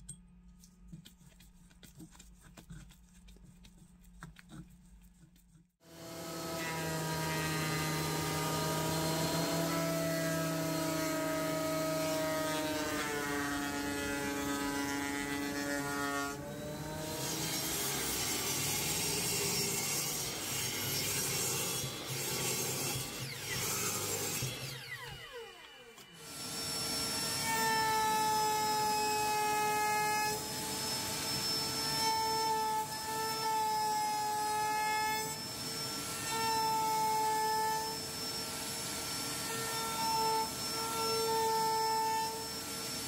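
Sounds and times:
saw cutting wood: 5.8s - 43.0s
thickness planer motor running: 5.9s - 15.6s
router motor running: 5.9s - 32.3s.

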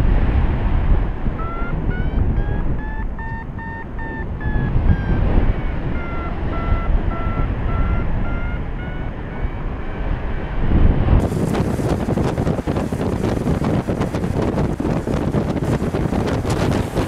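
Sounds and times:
wind rumble on microphone: 0.0s - 17.0s
variometer beeping: 1.3s - 10.2s.

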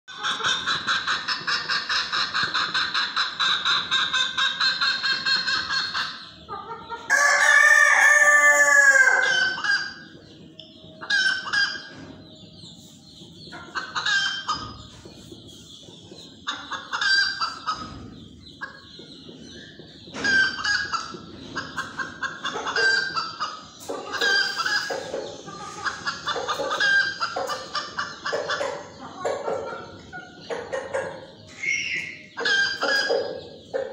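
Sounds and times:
chickens clucking: 0.1s - 33.9s
rooster crowing: 7.1s - 9.3s.

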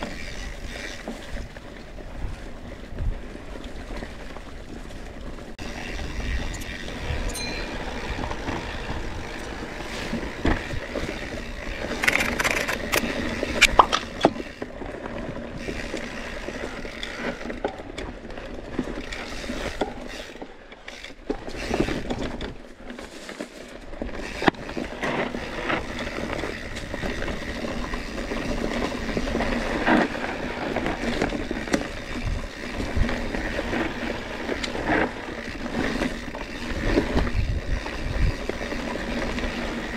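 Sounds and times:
bicycle chain and frame rattling: 0.0s - 39.9s
tyres rolling over dirt: 0.0s - 39.9s
wind rushing over microphone: 36.2s - 39.9s.

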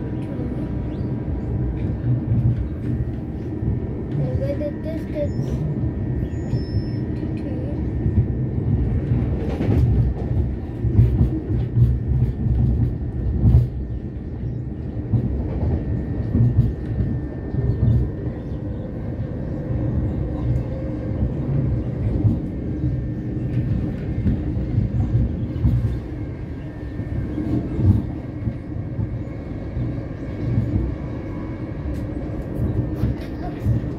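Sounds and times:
train rumbling: 0.0s - 33.9s
train clicks: 1.7s - 5.7s, 6.5s - 18.6s, 20.3s - 26.1s, 31.8s - 33.9s.

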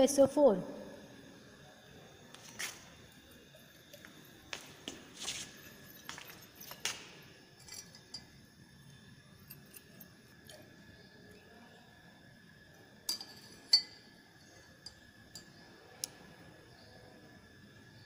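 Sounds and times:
glass clinking against glass: 13.1s - 14.1s.

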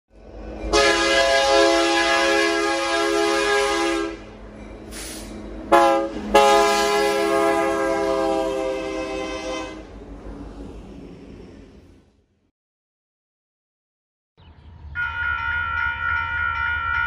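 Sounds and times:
freight train rumbling past: 0.1s - 12.5s
locomotive air horn blasts: 0.7s - 4.3s, 5.0s - 10.0s.

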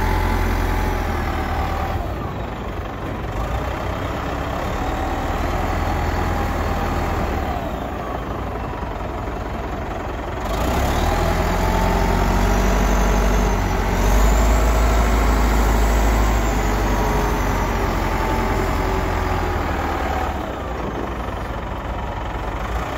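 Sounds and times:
diesel engine running: 0.0s - 22.9s.

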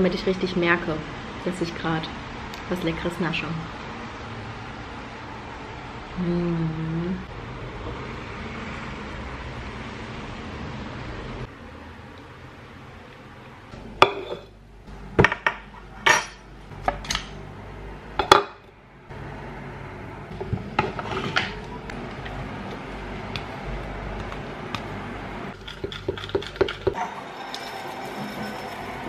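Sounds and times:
tableware knocks and clinks: 14.0s - 14.5s, 15.2s - 17.4s
spoon scraping glass bowl: 25.6s - 29.0s.

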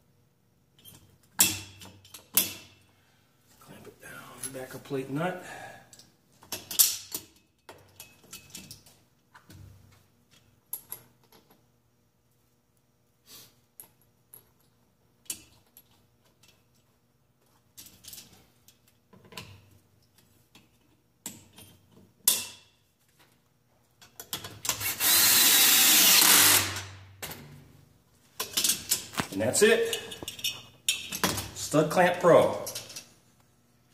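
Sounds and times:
metal parts clicking and clanking: 0.8s - 2.8s, 5.9s - 9.0s, 17.5s - 23.4s, 24.0s - 24.8s, 28.4s - 31.6s, 32.4s - 33.2s.

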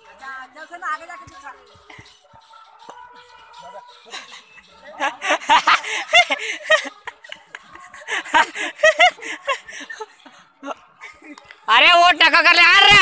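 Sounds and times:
men laughing: 4.0s - 11.6s.

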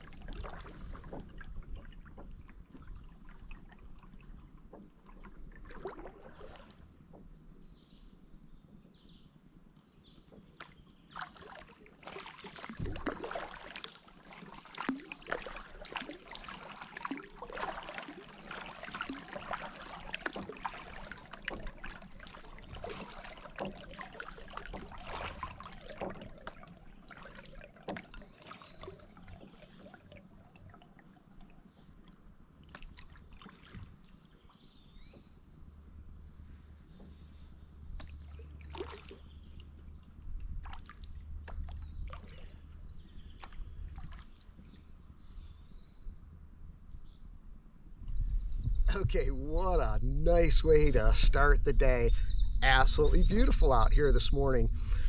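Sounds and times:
paddle splashing water: 0.0s - 8.1s, 9.8s - 46.2s, 49.0s - 55.0s.

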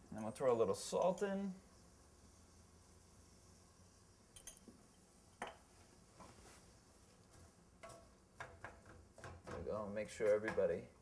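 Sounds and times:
wooden spoon tapping pan: 7.8s - 9.6s.

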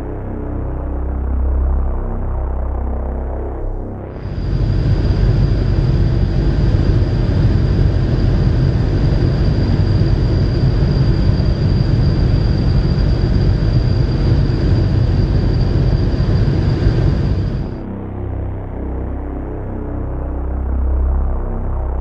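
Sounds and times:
light aircraft engine droning: 0.0s - 22.0s
thin high whine: 4.2s - 17.8s.

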